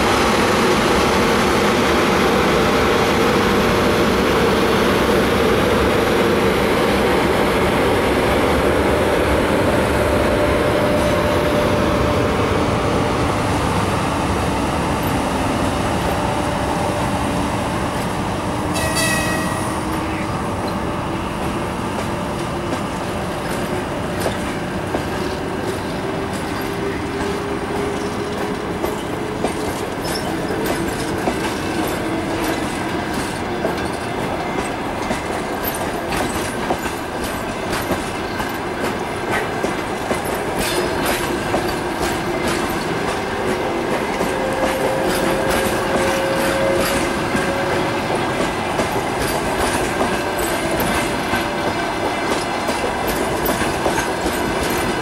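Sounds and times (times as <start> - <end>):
train wheels clicking over rail joints: 17.9 - 55.0.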